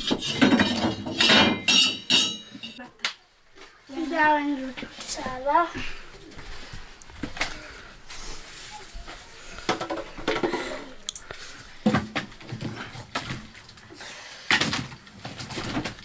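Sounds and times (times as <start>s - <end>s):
metal dishes clinking: 0.0s - 2.8s.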